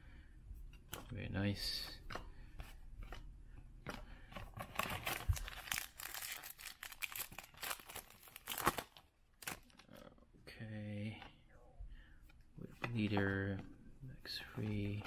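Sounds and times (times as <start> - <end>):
foil wrapper tearing and crinkling: 4.8 - 9.8.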